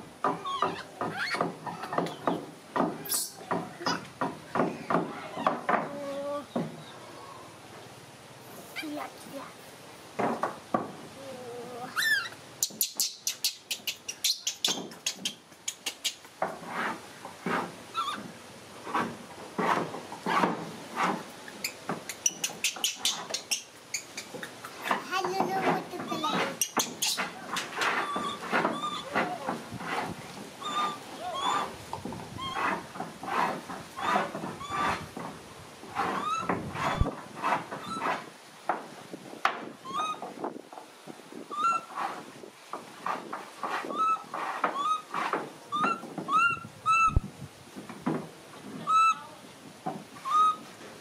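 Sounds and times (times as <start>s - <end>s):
baby monkey squealing: 0.4s - 2.1s, 3.0s - 4.1s, 11.9s - 16.2s, 17.9s - 18.2s, 21.6s - 24.5s, 26.1s - 29.5s, 30.6s - 31.8s, 32.4s - 32.8s, 36.1s - 37.1s, 39.8s - 40.2s, 41.5s - 41.9s, 43.9s - 45.1s, 45.7s - 47.2s, 48.8s - 49.2s, 50.2s - 50.6s
rustling and scraping: 14.1s - 48.9s.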